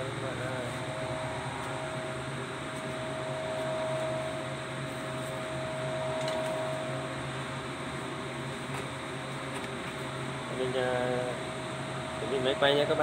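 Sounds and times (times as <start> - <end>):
fan whirring: 0.0 - 13.0.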